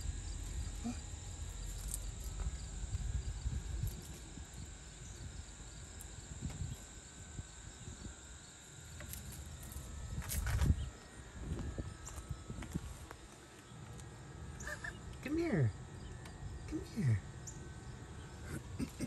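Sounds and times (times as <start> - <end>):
low rumble: 0.0 - 6.6
thin high whine: 0.0 - 19.0.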